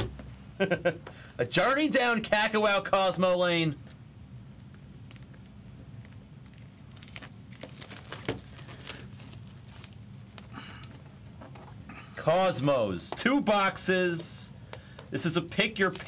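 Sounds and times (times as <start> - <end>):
plastic wrap crinkling: 3.8 - 11.7, 14.8 - 16.0.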